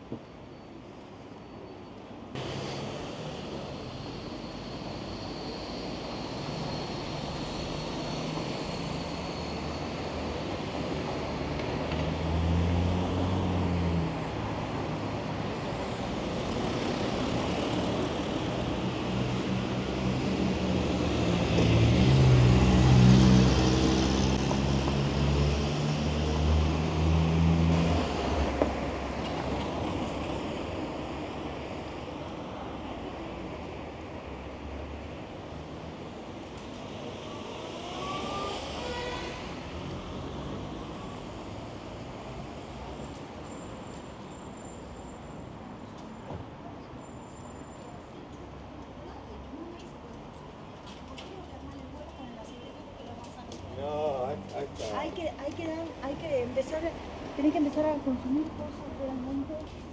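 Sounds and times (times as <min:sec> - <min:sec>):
vehicle engines passing: 0:09.8 - 0:32.1.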